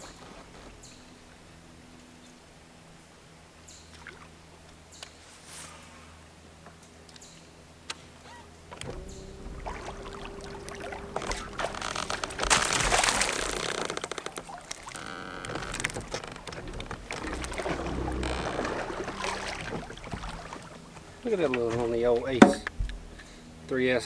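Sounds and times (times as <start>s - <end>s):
fish splashing: 8.8s - 21.3s.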